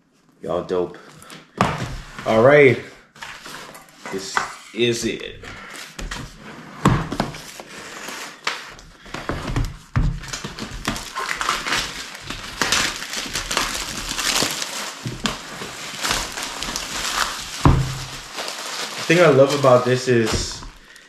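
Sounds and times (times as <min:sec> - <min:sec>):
plastic shrink wrap crinkling: 0:07.1 - 0:21.0.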